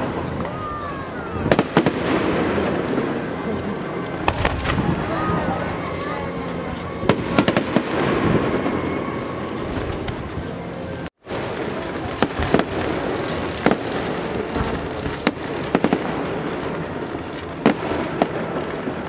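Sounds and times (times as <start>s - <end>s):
sharp firework bangs: 0.0s - 3.3s, 4.2s - 5.3s, 7.1s - 10.0s, 11.2s - 19.0s
fireworks bursts and crackle: 0.0s - 19.0s.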